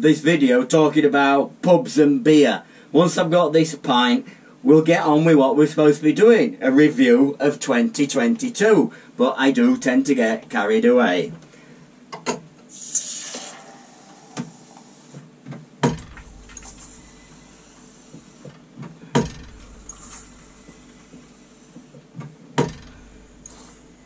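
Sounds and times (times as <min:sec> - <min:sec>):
pump handle knocking: 0:15.8 - 0:16.4, 0:18.2 - 0:20.0, 0:22.6 - 0:23.2.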